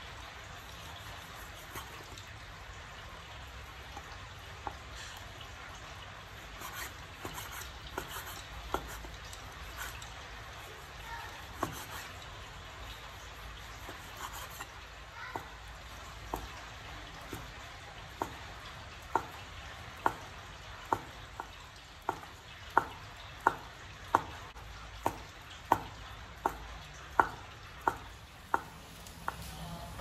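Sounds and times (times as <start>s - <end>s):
cleaver tapping on wooden board: 20.9s - 24.4s, 25.0s - 29.5s.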